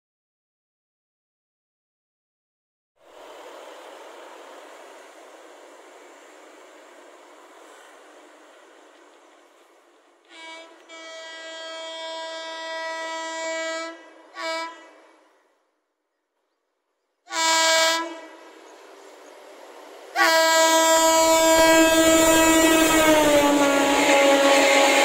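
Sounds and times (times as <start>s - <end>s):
rumble of approaching train: 3.0s - 15.8s, 16.4s - 25.0s
locomotive horn blasts: 10.3s - 15.0s, 17.3s - 18.4s, 20.2s - 25.0s.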